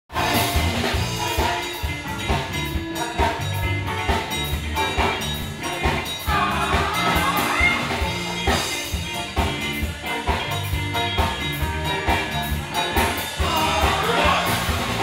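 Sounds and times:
live band playing upbeat song: 0.1s - 15.0s
drum beat: 0.2s - 15.0s.

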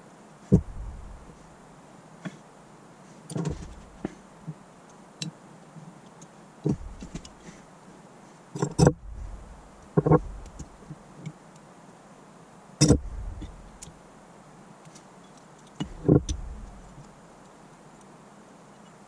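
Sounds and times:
dull thumps on bench: 0.5s - 1.2s, 3.4s - 4.2s.

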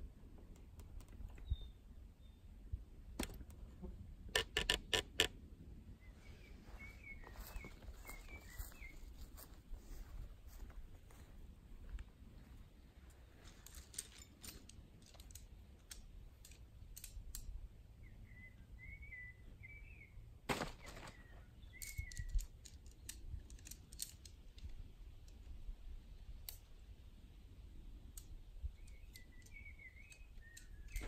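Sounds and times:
bird chirping: 1.2s - 2.5s, 6.0s - 10.1s, 17.9s - 20.3s, 21.0s - 23.4s, 28.6s - 31.0s.

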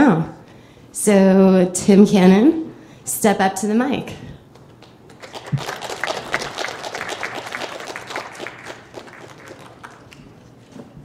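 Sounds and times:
audience applauding: 5.1s - 10.4s.

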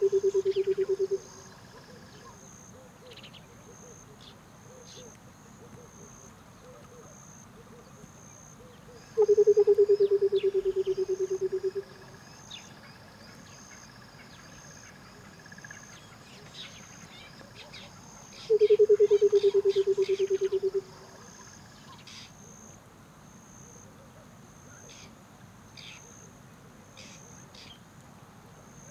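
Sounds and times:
high insect chirring: 0.0s - 1.7s, 9.2s - 12.6s, 18.4s - 21.2s.

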